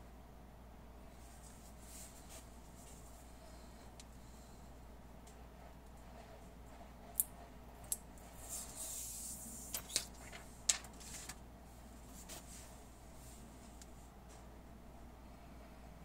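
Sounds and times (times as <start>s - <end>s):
plastic film rustling: 9.4s - 11.4s.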